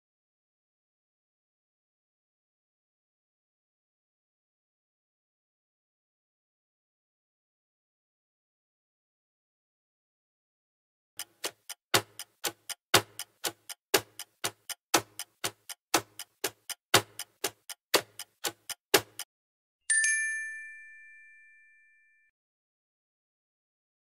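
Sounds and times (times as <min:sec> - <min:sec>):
clock ticking: 0:11.2 - 0:19.3
bell ding: 0:19.9 - 0:22.3.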